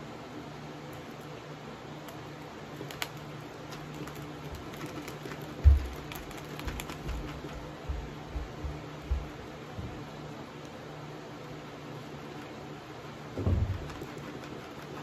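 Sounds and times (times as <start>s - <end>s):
low room hum: 0.0s - 15.0s
snack packets crinkling: 2.8s - 7.7s.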